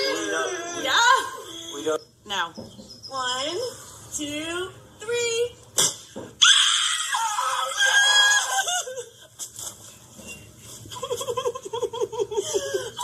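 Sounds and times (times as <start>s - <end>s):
cartoon character screaming: 6.4s - 8.5s
rapid sobbing: 11.0s - 13.0s.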